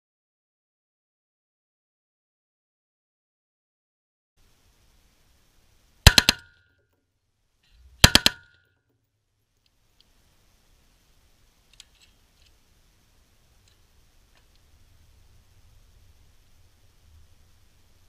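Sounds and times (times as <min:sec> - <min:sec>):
rifle firing full auto bursts: 0:06.1 - 0:06.6, 0:08.0 - 0:08.6
faint clicks: 0:07.6 - 0:10.2, 0:11.7 - 0:12.6, 0:13.6 - 0:14.7.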